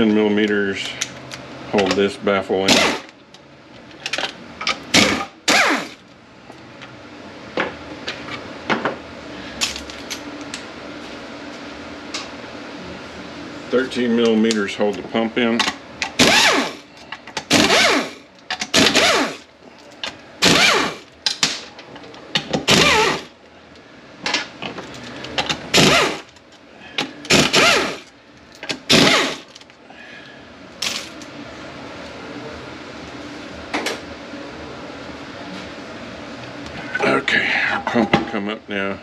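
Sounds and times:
power ratchet whirring: 2.7 - 3.1, 4.9 - 6.0, 16.0 - 19.5, 20.4 - 21.1, 22.6 - 23.3, 25.7 - 26.3, 27.2 - 29.6.

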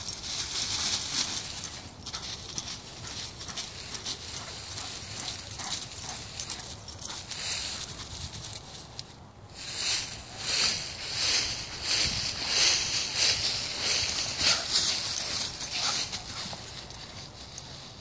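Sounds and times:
dog running through dry leaves: 0.0 - 8.9, 9.8 - 18.0.

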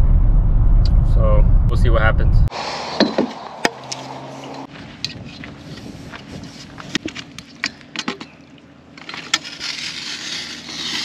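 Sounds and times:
faint background rumble: 0.0 - 2.5
footsteps on dry roots and straw: 3.8 - 7.1.

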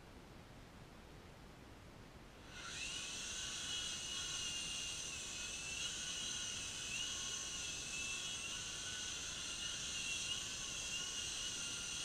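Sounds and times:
toy helicopter motors whining: 2.4 - 12.0.

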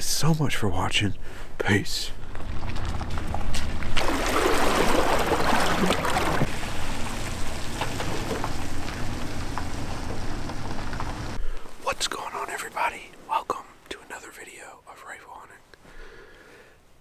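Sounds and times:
water splashing along hull: 2.5 - 11.4
boat motor idling: 5.2 - 11.4.

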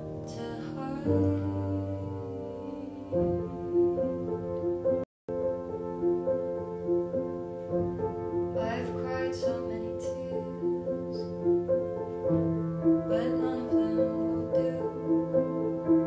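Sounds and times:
solo piano: 0.0 - 16.0
woman singing: 0.2 - 4.2, 8.6 - 11.4, 13.1 - 15.2.

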